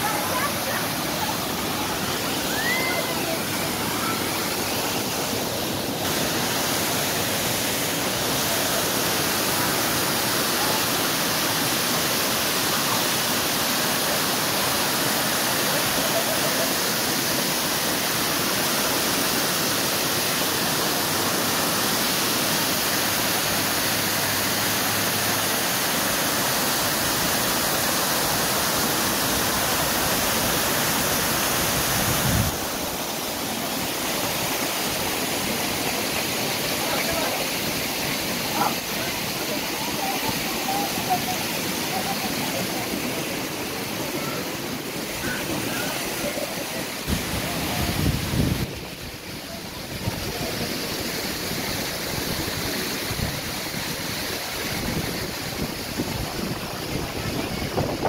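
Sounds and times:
water cascading: 0.0s - 58.0s.

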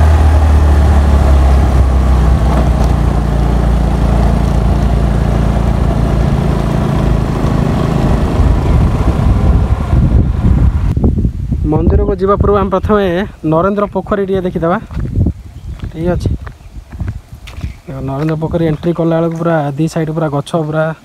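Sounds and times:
motorbike engine running: 0.0s - 10.9s
wind noise on microphone: 0.0s - 19.6s.

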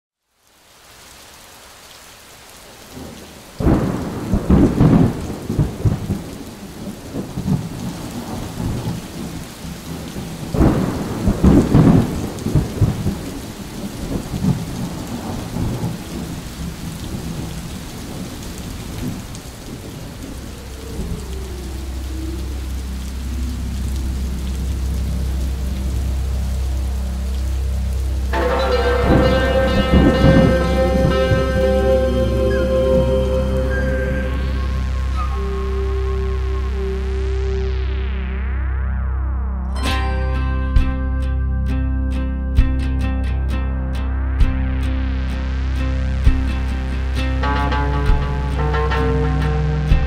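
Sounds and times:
steady rain: 0.2s - 38.6s, 39.9s - 50.0s
thunder rolling: 3.0s - 24.2s, 28.3s - 35.5s
low steady drone: 19.3s - 50.0s.

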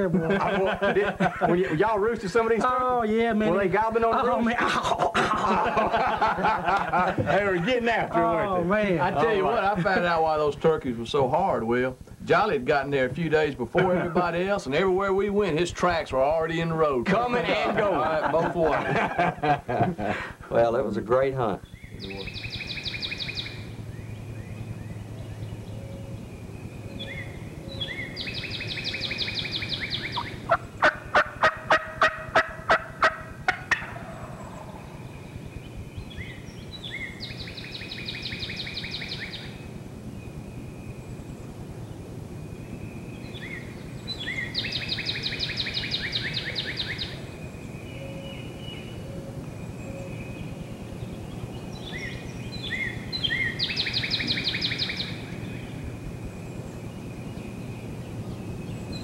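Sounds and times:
turkey gobbling: 28.5s - 35.0s
turkey yelps: 29.6s - 34.9s.

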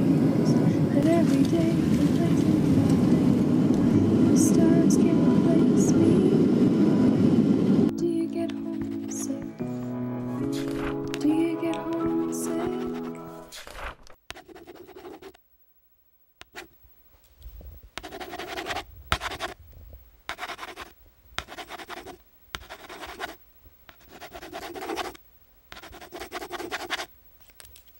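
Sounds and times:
pen scratching on paper: 10.4s - 11.2s, 12.2s - 15.4s, 16.5s - 16.7s, 18.0s - 19.6s, 20.3s - 27.1s.

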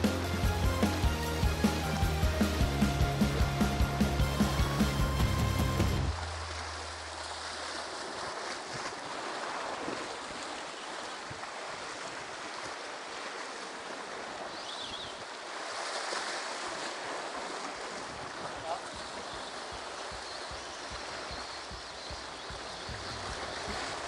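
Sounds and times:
wind on microphone: 19.6s - 24.0s.

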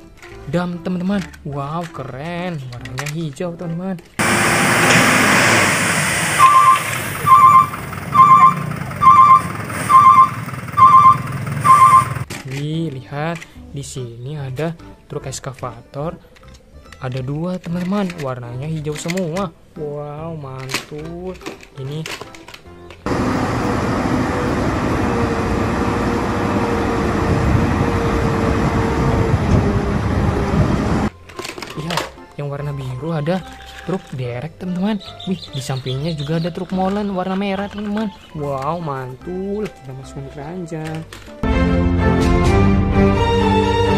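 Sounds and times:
soil sliding out rushing: 4.2s - 7.2s
diesel truck engine running: 4.2s - 12.2s, 23.1s - 31.1s
electronic warning beeper: 6.3s - 12.2s.

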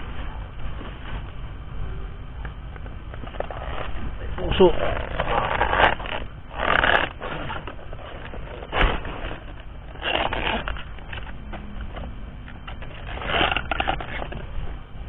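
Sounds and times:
leaves rustling and crunching: 3.2s - 11.3s.

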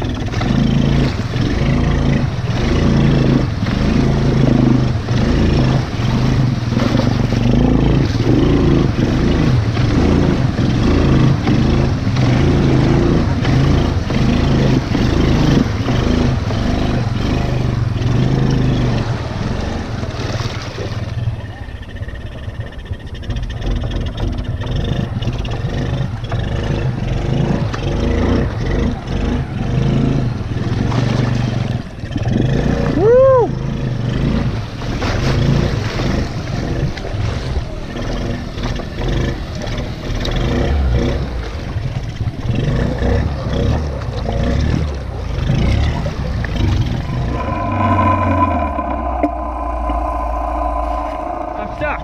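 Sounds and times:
water churning: 0.0s - 26.3s, 33.5s - 52.0s
quad engine running: 0.0s - 41.5s
rising and falling tone: 46.7s - 52.0s.

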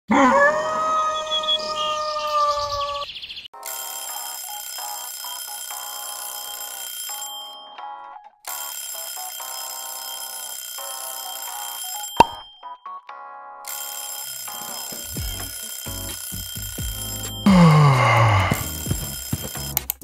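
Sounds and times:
alarm ringing: 3.6s - 13.0s, 13.6s - 20.0s.

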